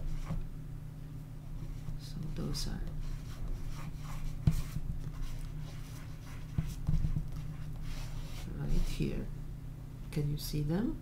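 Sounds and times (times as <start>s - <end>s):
steady low hum: 0.0s - 11.0s
pastel scraping across paper: 1.6s - 9.1s.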